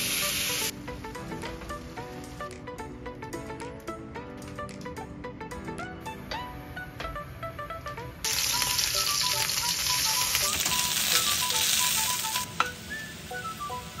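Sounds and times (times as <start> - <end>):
chicken sizzling in frying pan: 0.0 - 0.7, 8.2 - 14.0.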